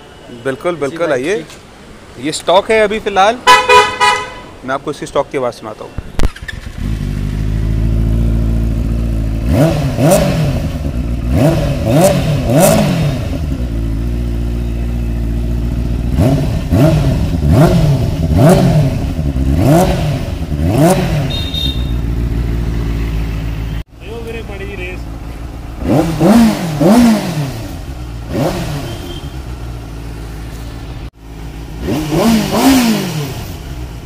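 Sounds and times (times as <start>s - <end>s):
motorcycle engine idling: 6.3s - 9.6s, 13.4s - 18.3s, 21.3s - 32.4s
quick throttle blips: 20.8s - 22.2s.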